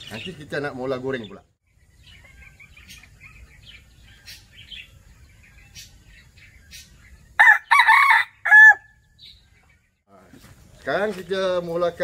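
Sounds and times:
small birds chirping: 0.0 - 12.0
rooster crowing: 7.4 - 8.9.

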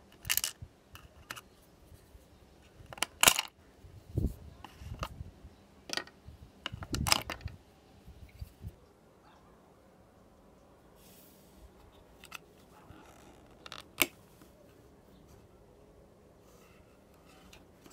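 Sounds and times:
metal parts clicking against plastic: 0.1 - 1.4, 2.9 - 3.5.

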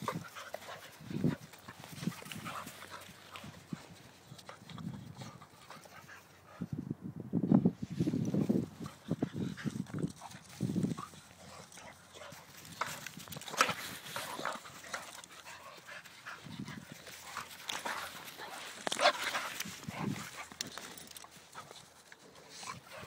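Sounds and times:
dogs scuffling: 8.9 - 23.0.

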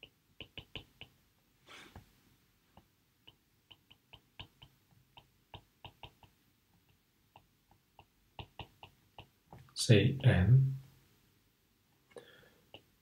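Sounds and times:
stylus tapping on tablet screen: 0.0 - 1.2, 1.9 - 10.3, 12.7 - 13.0.

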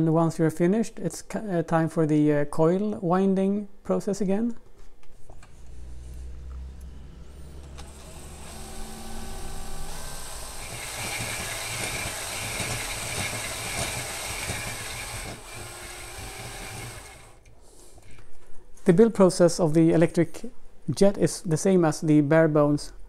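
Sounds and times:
power tool motor whine: 5.5 - 17.4.

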